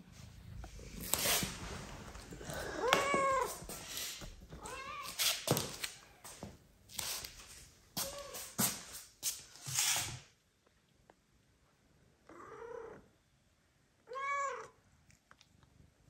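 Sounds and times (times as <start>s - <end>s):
rustling brushing noises: 0.0s - 10.3s
cat meowing: 2.5s - 3.7s, 4.6s - 5.3s, 14.1s - 14.8s.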